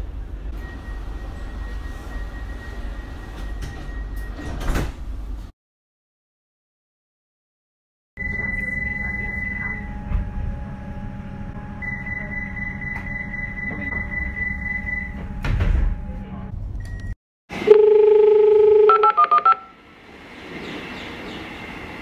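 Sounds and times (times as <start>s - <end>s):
public-address attention chime: 8.2s - 10.1s, 11.8s - 15.2s, 17.7s - 19.7s
train door chime: 8.2s - 10.5s
platform announcement: 8.2s - 16.6s.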